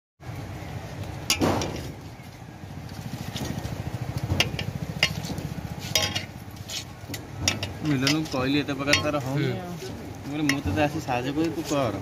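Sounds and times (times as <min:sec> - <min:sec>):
engine idling rumble: 0:00.2 - 0:08.8.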